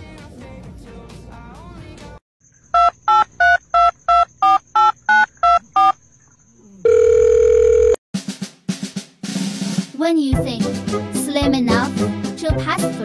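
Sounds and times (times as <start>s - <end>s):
steady phone line tone: 2.8s - 6.0s, 6.8s - 8.0s
touch-tone keypad beeps: 2.8s - 6.0s.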